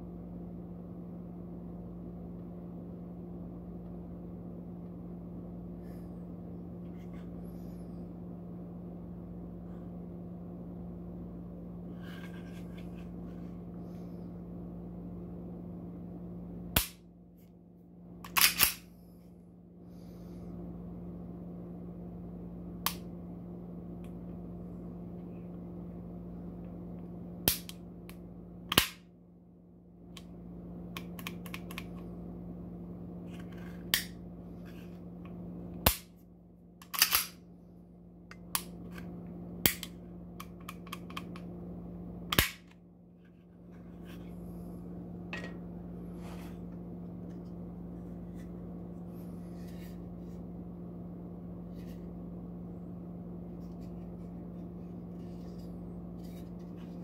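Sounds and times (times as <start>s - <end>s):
pistol slide metallic clicks: 18.3s - 18.8s, 36.8s - 37.4s.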